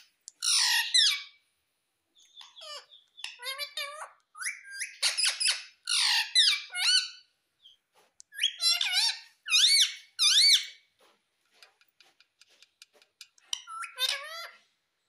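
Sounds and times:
parakeet squawking and calling: 0.4s - 1.4s, 2.2s - 10.9s, 13.4s - 14.7s.

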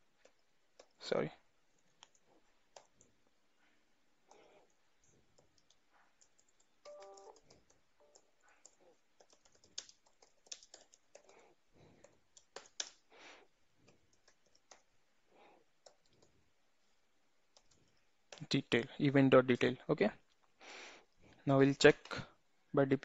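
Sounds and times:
keyboard keystroke clicks: 5.4s - 8.3s.

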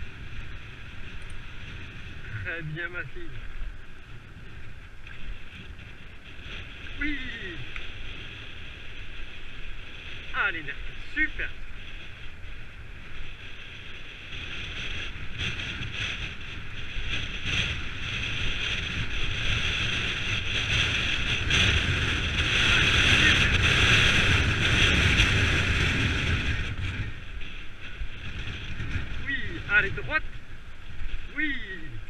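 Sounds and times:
wind rushing over microphone: 0.0s - 32.0s.

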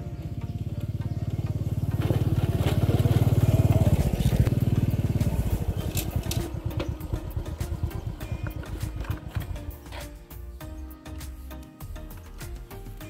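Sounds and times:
small motorcycle engine: 0.0s - 10.3s.

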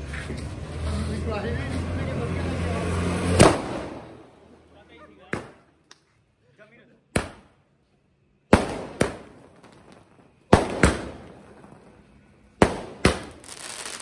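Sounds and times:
firework bangs: 3.2s - 4.3s, 8.5s - 14.0s
firework crackle and hiss: 8.5s - 14.0s.

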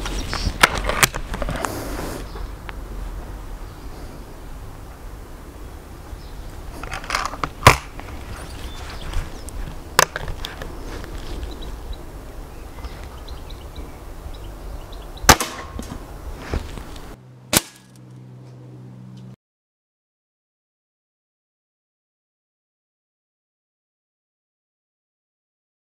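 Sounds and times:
low hum: 0.0s - 19.4s
air rifle shot crack: 15.3s - 15.9s, 17.5s - 18.0s.

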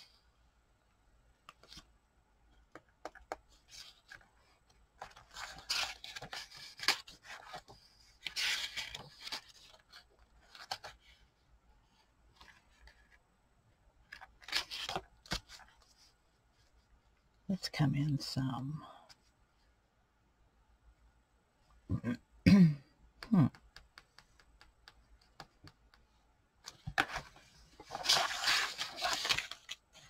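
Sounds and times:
paper pages rustling: 3.1s - 11.2s, 14.1s - 16.9s, 26.6s - 30.0s.

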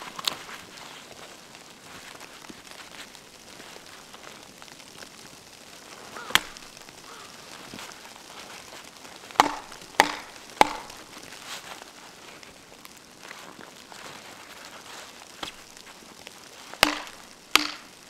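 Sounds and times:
hatchet chopping wood: 6.3s - 6.6s, 9.4s - 11.0s, 16.8s - 18.0s.

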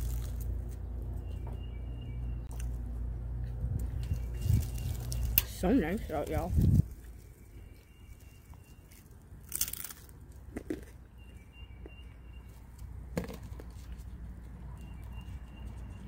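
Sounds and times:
low steady rumble: 0.0s - 16.0s
rustle while eating: 3.5s - 10.1s.

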